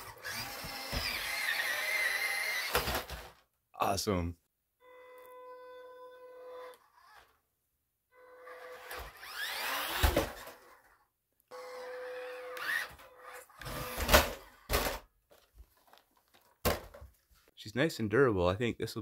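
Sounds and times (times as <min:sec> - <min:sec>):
electric motor whining: 0:00.0 - 0:02.8, 0:08.4 - 0:10.8, 0:11.5 - 0:14.7.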